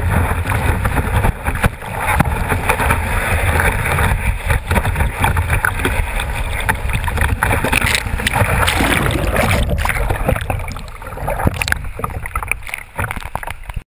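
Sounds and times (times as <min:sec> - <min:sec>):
wind rumble on microphone: 0:00.0 - 0:13.8
water spray splashing: 0:08.2 - 0:11.7.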